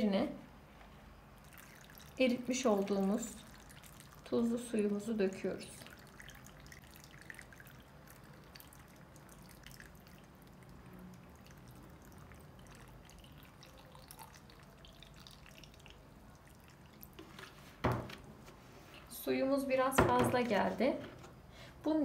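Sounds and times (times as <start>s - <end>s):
brine trickling into a plastic jug: 1.4s - 18.1s.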